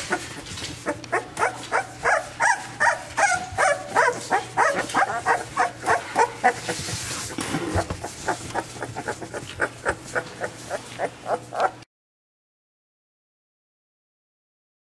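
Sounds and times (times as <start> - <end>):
puppy whimpering: 0.0 - 11.8.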